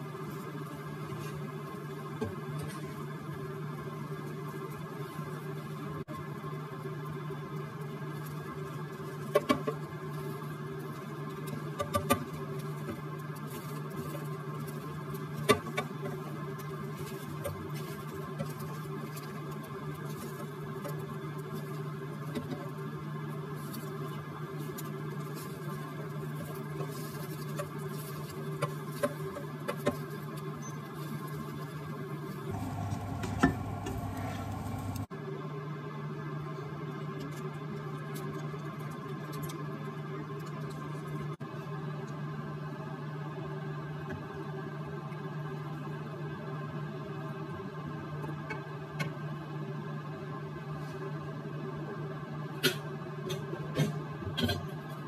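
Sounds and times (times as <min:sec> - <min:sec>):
steady low hum: 0:32.5 - 0:35.1.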